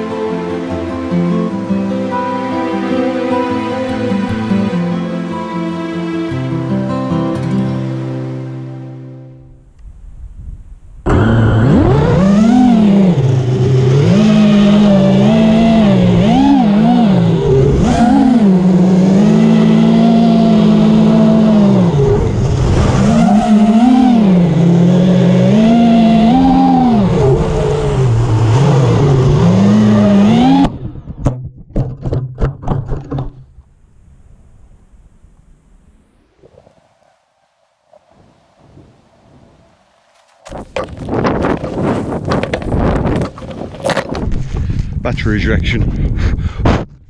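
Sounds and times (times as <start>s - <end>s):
drone motors buzzing whine: 11.0s - 31.0s.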